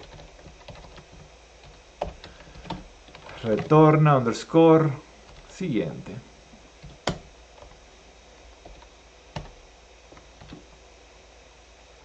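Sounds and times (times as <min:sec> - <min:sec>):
keyboard keystrokes: 0:00.0 - 0:03.8, 0:06.8 - 0:07.8, 0:08.6 - 0:10.7.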